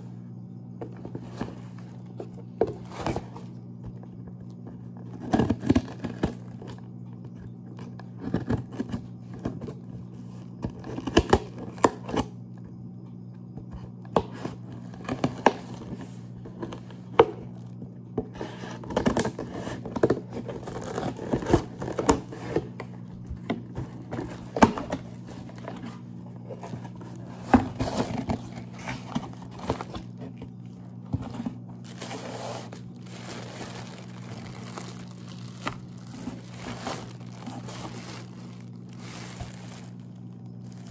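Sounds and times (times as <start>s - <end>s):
plastic packaging crinkling: 18.7s - 40.9s
cardboard box being torn open: 31.2s - 40.9s.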